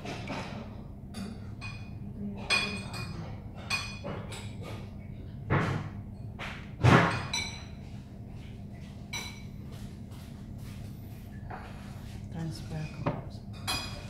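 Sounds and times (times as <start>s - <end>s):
dishes clinking: 0.0s - 7.9s, 9.1s - 9.8s, 11.4s - 14.0s.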